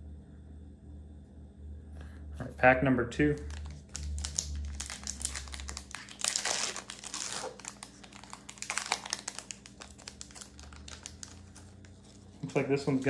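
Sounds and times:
foil ripping tear: 3.4 - 13.0
foil wrapper crackling: 3.4 - 13.0.

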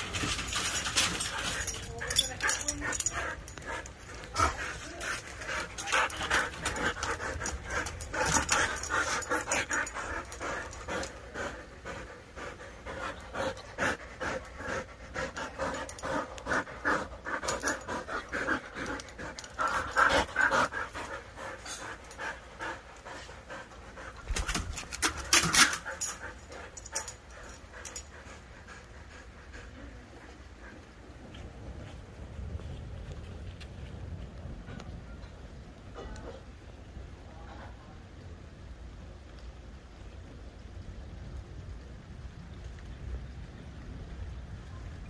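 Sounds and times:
dog panting rapidly: 0.0 - 31.0.

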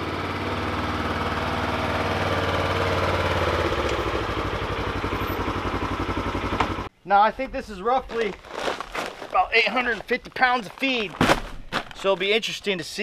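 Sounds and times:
utility vehicle engine running: 0.0 - 6.9.

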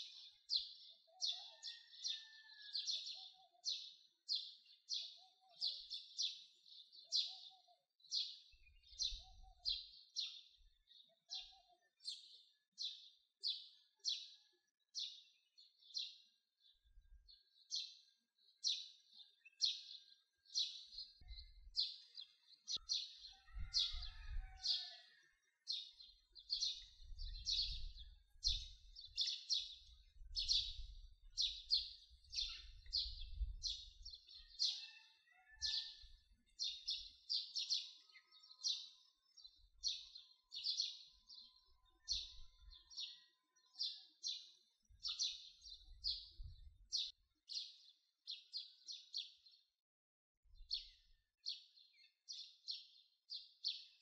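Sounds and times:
bird chirping: 25.8 - 49.4.

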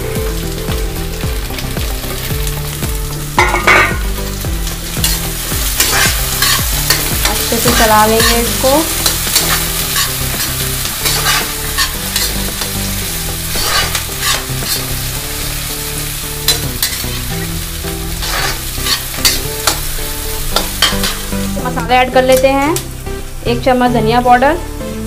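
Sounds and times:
vegetables sizzling in oil: 0.0 - 25.0
ladle scraping and knocking pan: 3.4 - 4.1, 5.0 - 8.4, 9.0 - 12.6, 13.5 - 15.0, 16.5 - 17.3, 18.2 - 19.8.

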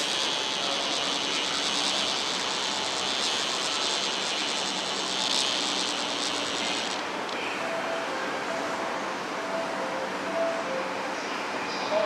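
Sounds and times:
even hiss: 0.0 - 7.1
faint steady tones: 0.0 - 11.7.

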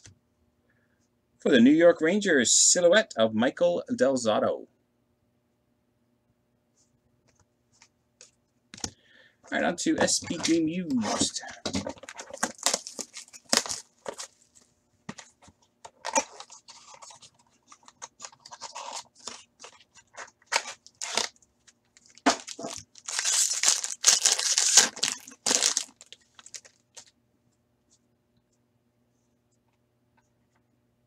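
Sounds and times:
wrapper tearing and crinkling: 11.9 - 14.6, 16.0 - 27.1.

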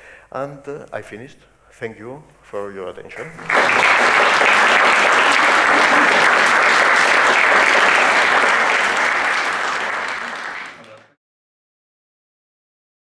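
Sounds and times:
audience applauding: 3.4 - 11.2.

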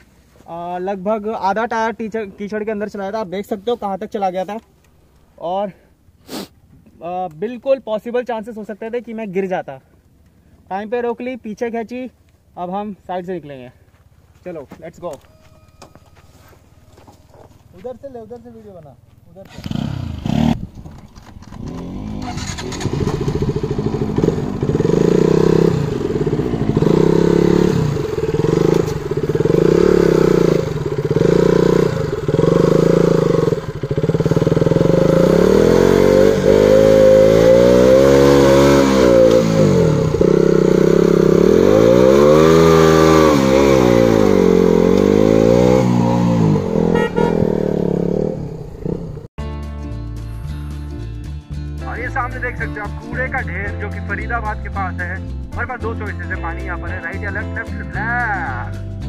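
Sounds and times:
motorcycle engine revving: 19.4 - 49.3.

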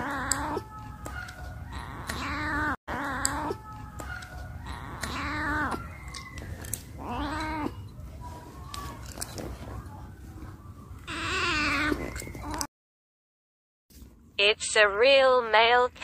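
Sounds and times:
cat meowing: 0.0 - 7.8, 11.1 - 12.7.

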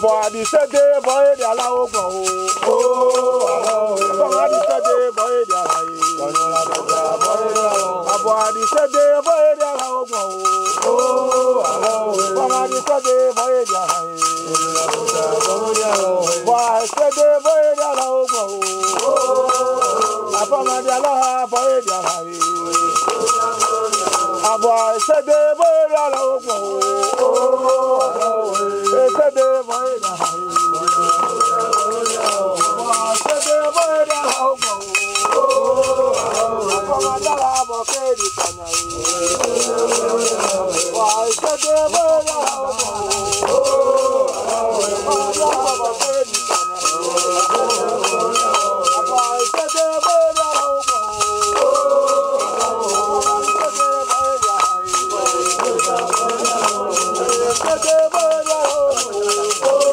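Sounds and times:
handclaps: 0.0 - 59.9
men singing a chant: 0.0 - 59.9
shaken rattle: 0.0 - 59.9
steady high-pitched tone: 26.0 - 59.7.

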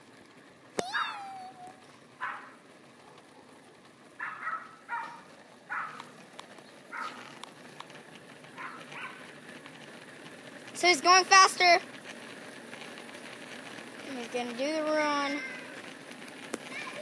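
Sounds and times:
dog barking: 2.2 - 3.2, 4.2 - 6.1, 6.9 - 7.2, 8.6 - 9.2.

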